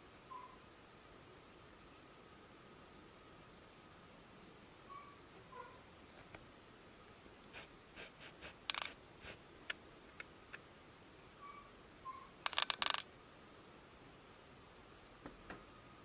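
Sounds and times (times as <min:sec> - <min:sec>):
faint bird chirps from speakers: 0:00.2 - 0:00.6, 0:04.9 - 0:05.8, 0:11.4 - 0:12.4.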